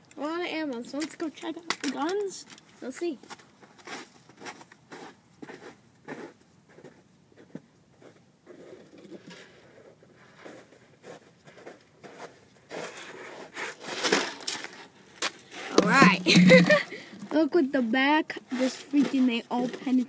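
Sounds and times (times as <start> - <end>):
plastic bottles crinkling: 13.8 - 17.4.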